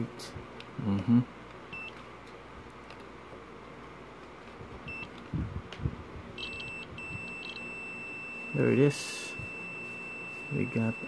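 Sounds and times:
multimeter beeping: 0:01.7 - 0:02.0, 0:04.9 - 0:05.1, 0:06.4 - 0:11.0.

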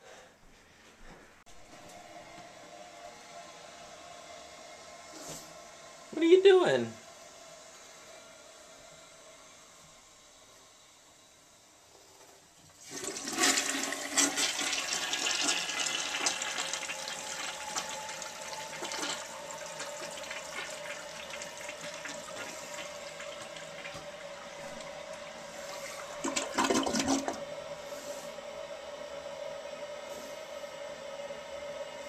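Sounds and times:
toilet tank refilling hiss: 0:09.6 - 0:28.4
toilet flushing: 0:12.6 - 0:28.4.

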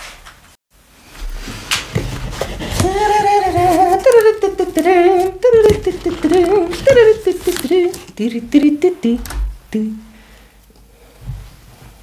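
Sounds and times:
man humming: 0:02.7 - 0:10.1.

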